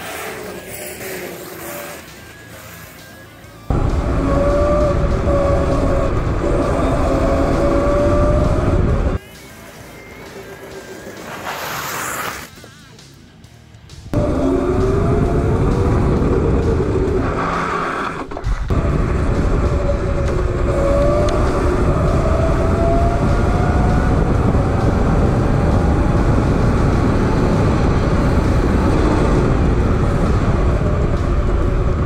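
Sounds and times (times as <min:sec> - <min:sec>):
electric motor whine rising: 0:00.0 - 0:12.4, 0:14.2 - 0:32.0
wind rushing on microphone: 0:03.7 - 0:09.2, 0:14.2 - 0:17.8, 0:18.4 - 0:32.0.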